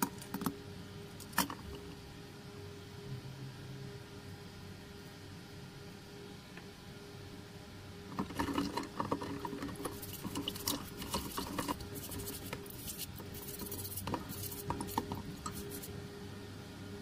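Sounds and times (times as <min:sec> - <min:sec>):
toothbrush scrubbing metal: 0:08.1 - 0:15.9.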